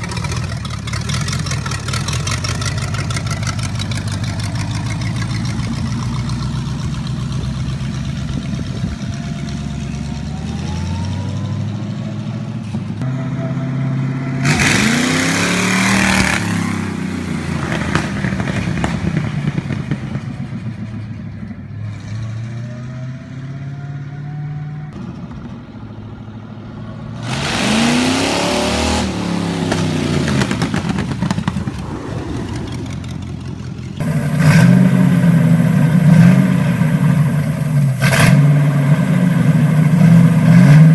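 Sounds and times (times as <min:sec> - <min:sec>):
second tractor engine starting: 0:00.0 - 0:11.7
tractor engine running and revving: 0:00.0 - 0:40.9.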